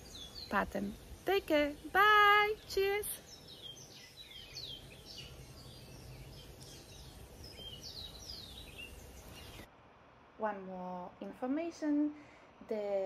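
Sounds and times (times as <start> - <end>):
birds chirping: 0.0 - 9.7
low outdoor background hiss: 0.0 - 13.0.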